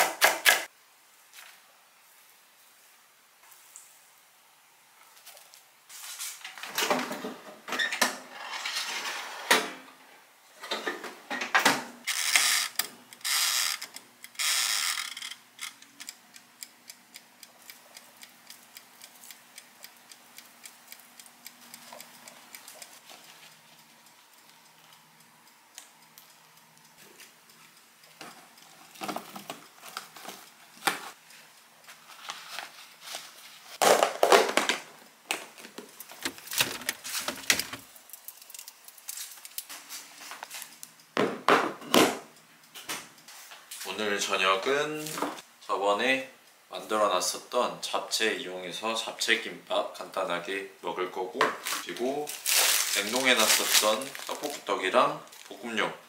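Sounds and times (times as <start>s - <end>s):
soft regular ticking: 12.6s - 32.2s, 37.8s - 39.7s
paper rustling and crinkling: 31.9s - 34.8s, 35.4s - 40.8s, 51.6s - 54.7s.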